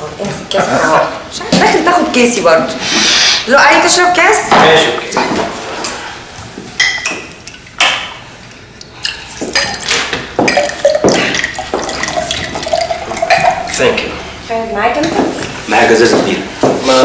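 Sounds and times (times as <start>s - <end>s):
glass knocks and clink: 6.8s - 8.1s, 9.4s - 13.7s
drink pouring into a glass: 9.5s - 14.1s.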